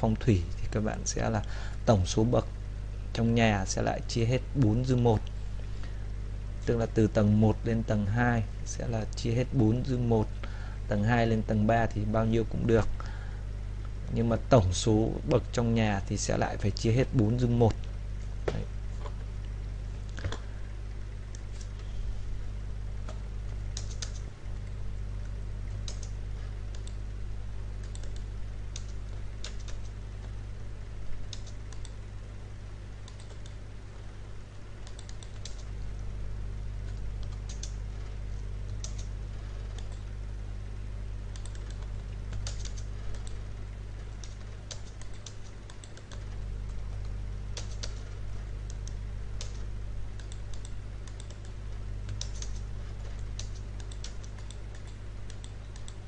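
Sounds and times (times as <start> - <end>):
steady low hum: 0.0 - 56.0
keyboard keys clicking: 23.1 - 24.3, 25.8 - 27.0, 44.2 - 48.0, 50.2 - 52.7.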